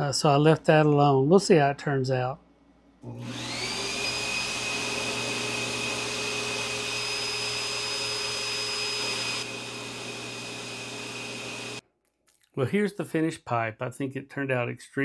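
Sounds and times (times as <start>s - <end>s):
buffing machine motor whine: 3.1s - 11.8s.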